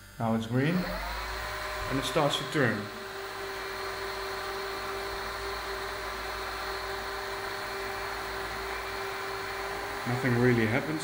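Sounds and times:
quadcopter motors humming: 0.0s - 11.0s
steady whine tone: 0.0s - 11.0s.

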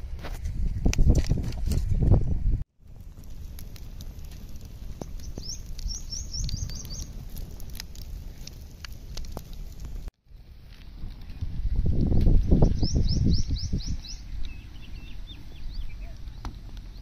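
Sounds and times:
wood fire crackling and popping: 2.8s - 12.9s, 15.2s - 17.0s
small bird chirping: 5.2s - 7.2s, 12.5s - 17.0s.

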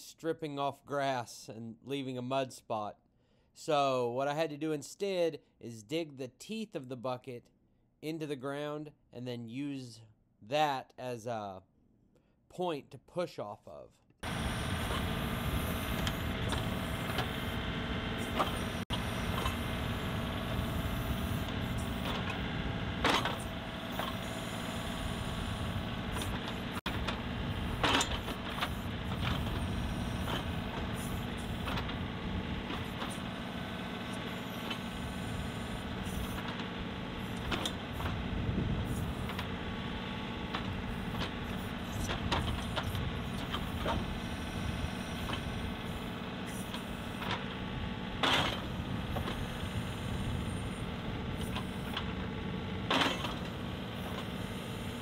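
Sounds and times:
diesel tractor engine running: 14.2s - 55.0s.

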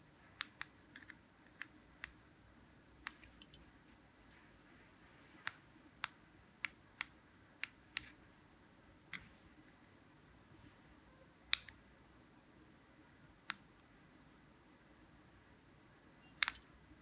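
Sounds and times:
remote control buttons clicking: 3.0s - 3.7s, 16.2s - 16.7s.

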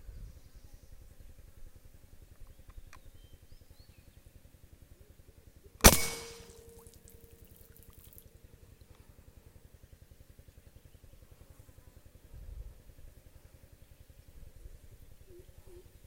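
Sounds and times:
rifle shot: 5.8s - 6.8s.

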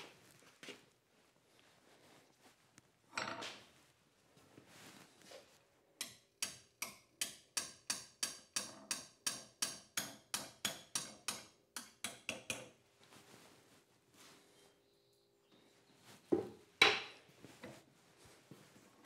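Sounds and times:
hammer striking hot steel: 6.0s - 12.6s.

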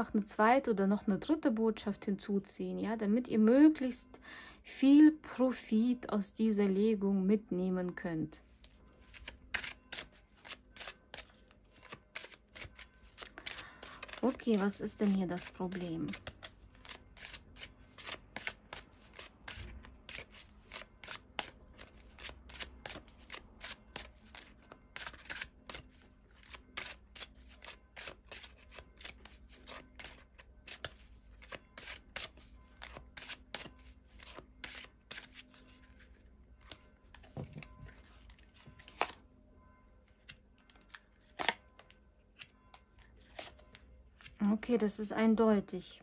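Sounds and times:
cards being shuffled: 8.6s - 39.2s.

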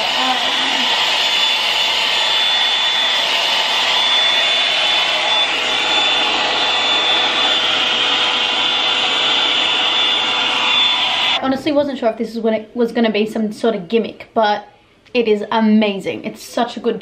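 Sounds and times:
blown air rushing: 0.0s - 11.4s.

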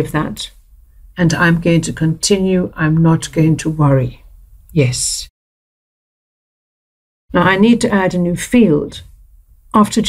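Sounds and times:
person speaking: 0.0s - 0.6s, 1.2s - 5.3s, 7.3s - 9.1s.

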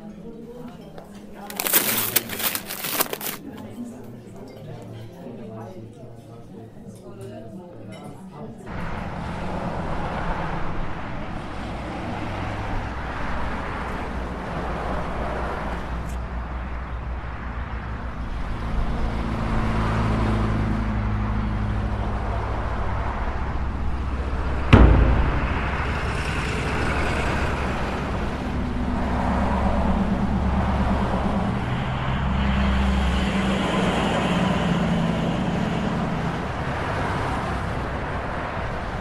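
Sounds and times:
vehicle engines passing: 8.7s - 39.0s
loud bang: 24.7s - 28.8s.

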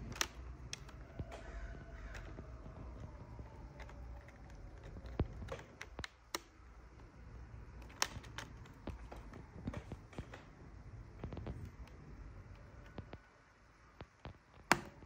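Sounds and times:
plastic keycap clicks: 7.8s - 9.1s.

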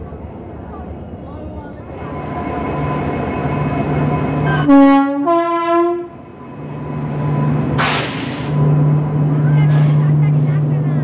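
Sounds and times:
crowd noise: 0.0s - 2.9s, 9.2s - 11.0s
train horn blasts: 4.4s - 6.2s.

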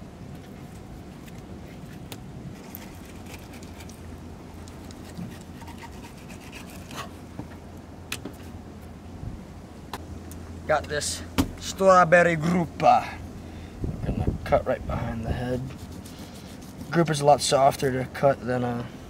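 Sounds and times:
steady low hum: 0.0s - 19.0s
knife scraping fish fillet: 2.6s - 4.0s, 4.9s - 7.2s.

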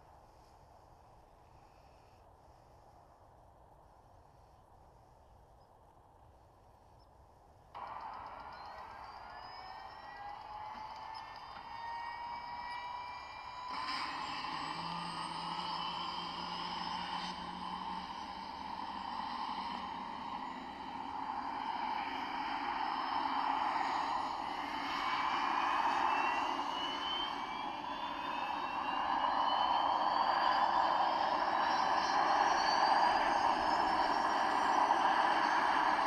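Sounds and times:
rc helicopter rotor and motor whine: 7.8s - 36.0s.

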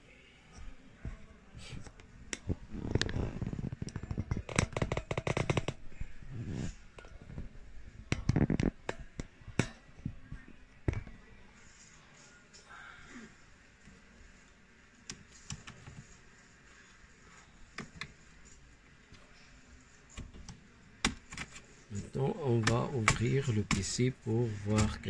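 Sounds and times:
hands rubbing and scraping laptop: 1.6s - 9.4s, 15.0s - 25.0s.

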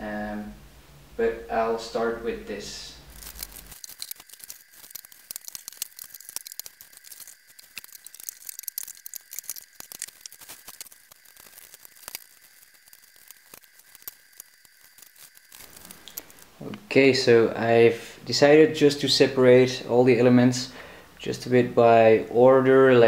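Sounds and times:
plastic wrapping crackling: 3.0s - 16.7s.

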